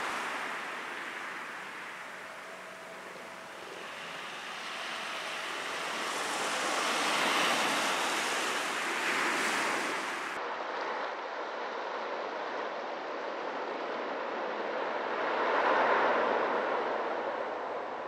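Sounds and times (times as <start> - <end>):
small waves on shingle beach: 0.0 - 10.4.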